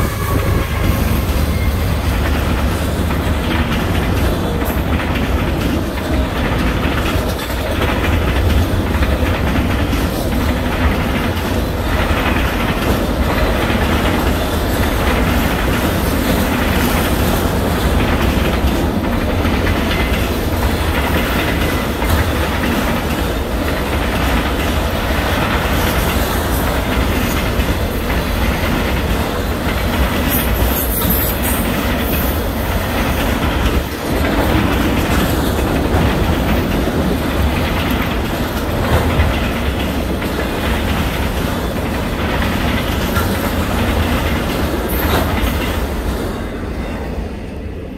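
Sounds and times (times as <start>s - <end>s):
wheels clacking over rail joints: 0.0s - 47.1s
freight train rumbling past: 0.0s - 47.9s.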